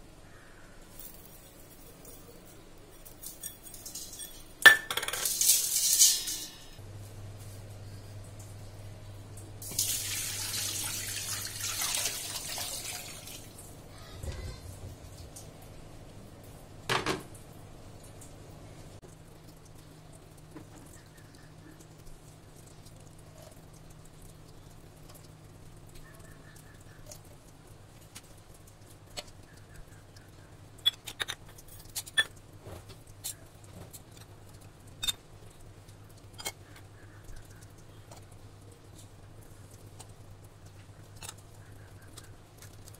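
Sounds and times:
steel cups clinking against bowl: 1.0s - 6.8s, 30.8s - 32.4s
water pouring into metal bowl: 9.6s - 13.6s.

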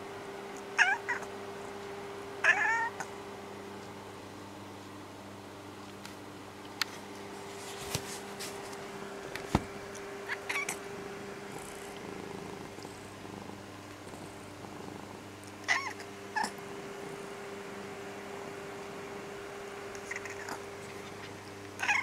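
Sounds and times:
steady low hum: 0.0s - 22.0s
cat meowing: 0.8s - 1.3s, 2.4s - 3.1s, 21.8s - 22.0s.

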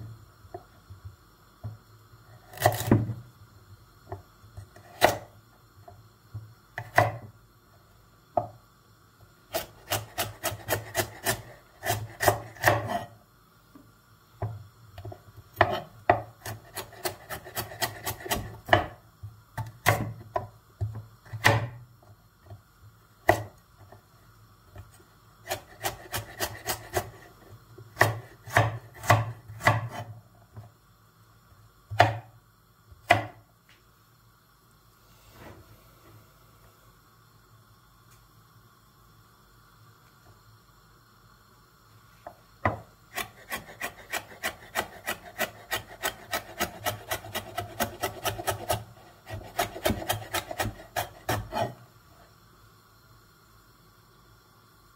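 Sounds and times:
knife chopping on wooden board: 6.8s - 7.2s, 9.6s - 13.0s, 15.6s - 18.9s, 21.3s - 21.8s, 28.0s - 30.0s, 31.9s - 32.3s, 33.1s - 33.4s, 42.7s - 51.8s.

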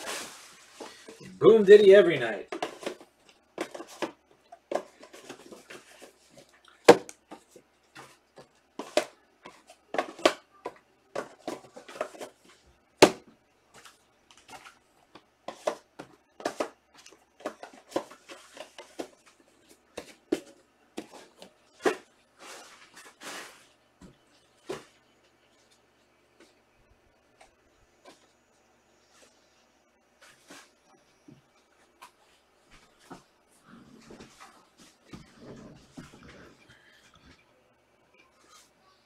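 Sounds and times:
wrappers rustling and crinkling: 0.0s - 1.3s.

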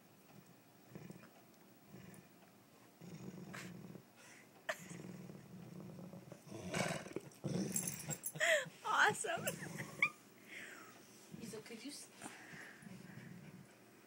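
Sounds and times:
big dog growling: 0.9s - 1.3s, 1.9s - 2.3s, 3.0s - 4.1s, 4.7s - 8.2s, 12.6s - 13.8s.

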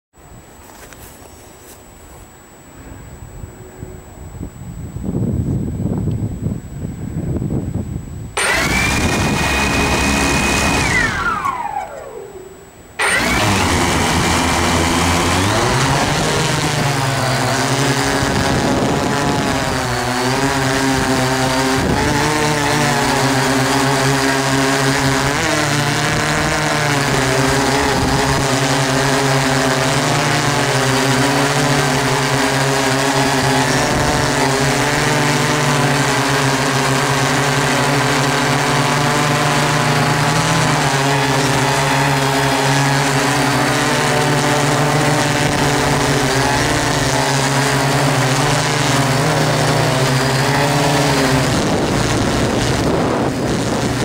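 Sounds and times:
drone motors humming: 0.2s - 54.0s
wind noise: 2.7s - 23.8s, 24.8s - 32.2s, 33.2s - 35.6s, 45.0s - 54.0s
drone motors whining: 8.3s - 54.0s.

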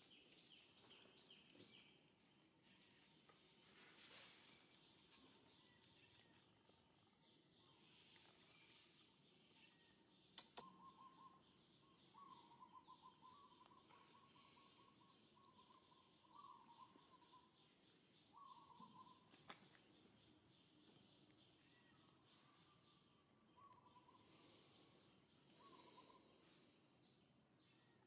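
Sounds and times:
faint trilling calls: 7.6s - 19.6s, 21.6s - 27.0s
sharp clicks: 10.4s - 10.6s.

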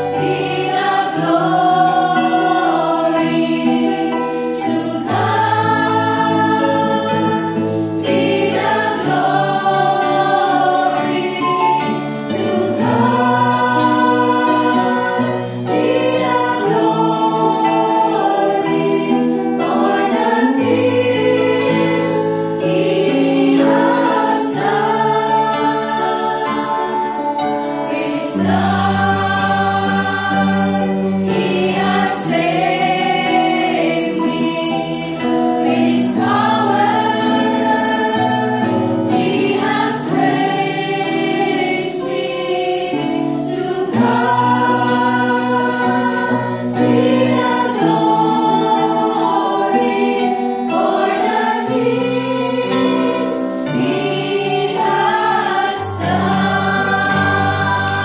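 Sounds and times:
women singing a hymn: 0.0s - 58.0s.

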